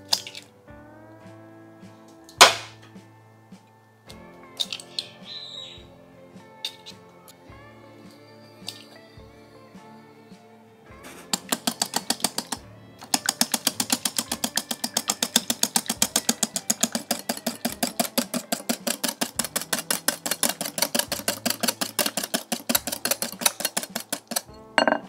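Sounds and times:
whisk clicking against glass bowl: 0:11.4 - 0:24.9.

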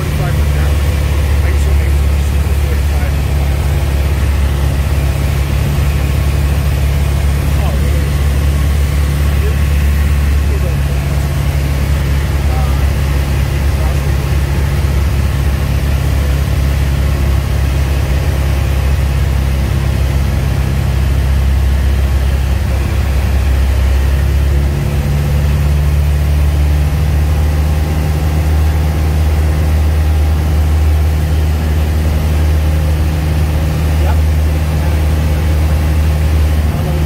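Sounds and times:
light aircraft engine drone: 0:00.0 - 0:37.0.

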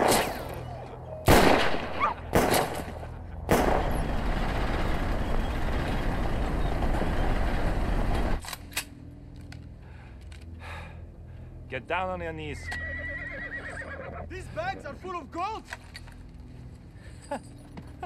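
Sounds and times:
tank and trucks rumbling: 0:00.0 - 0:08.4
sharp gunshot-like cracks: 0:01.3 - 0:02.9, 0:03.5 - 0:04.0.

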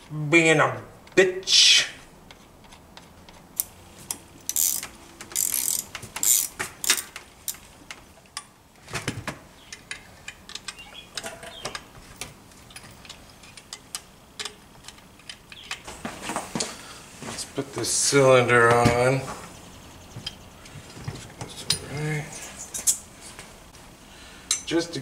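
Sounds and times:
metal tools clicking and clinking: 0:02.6 - 0:07.6, 0:09.7 - 0:15.9, 0:20.2 - 0:23.0.

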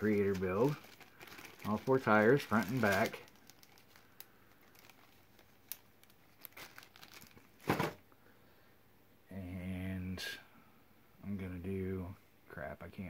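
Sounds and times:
plastic bag crinkling: 0:00.0 - 0:08.0.

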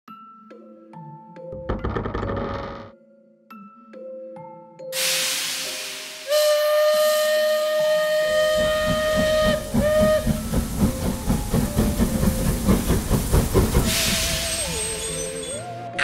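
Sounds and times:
steam whistle: 0:05.0 - 0:11.1, 0:13.8 - 0:15.7
steam hiss: 0:05.0 - 0:15.7
rhythmic train chuffing: 0:05.9 - 0:15.6.

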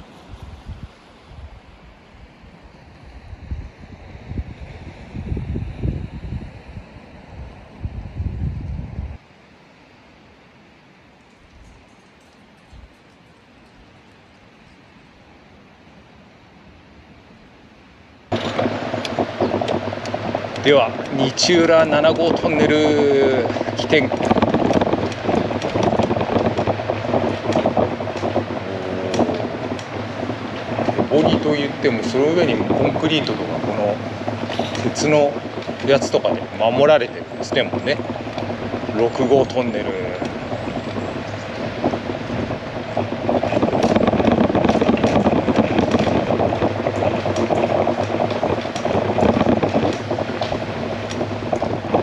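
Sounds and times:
wind on microphone: 0:00.0 - 0:09.2, 0:11.4 - 0:14.2, 0:18.1 - 0:52.0
bicycle tyres on rough pavement: 0:18.3 - 0:52.0
bike rattling: 0:18.3 - 0:52.0.

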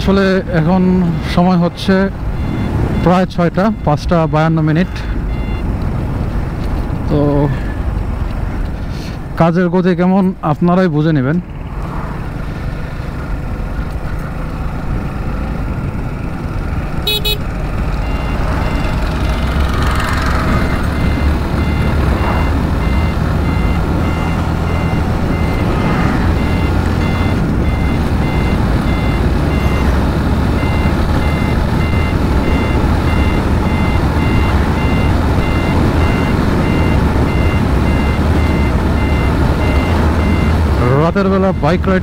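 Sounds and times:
repeating electronic beep: 0:01.2 - 0:05.7, 0:26.3 - 0:30.0
motorcycle engine running: 0:11.4 - 0:22.0.

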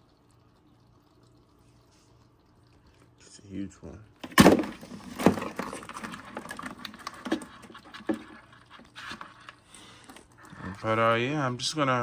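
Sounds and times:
crabs scrabbling in plastic cooler: 0:04.2 - 0:11.3.

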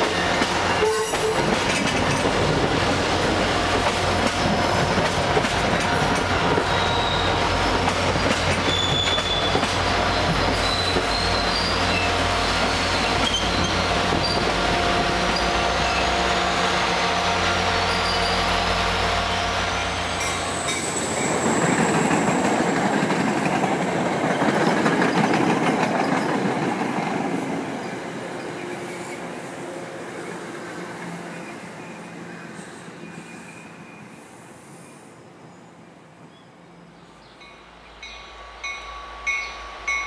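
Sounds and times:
train coaches rolling past: 0:00.0 - 0:40.0
train wheel squeal: 0:05.8 - 0:14.6, 0:15.3 - 0:22.8, 0:31.3 - 0:35.1, 0:37.4 - 0:40.0.

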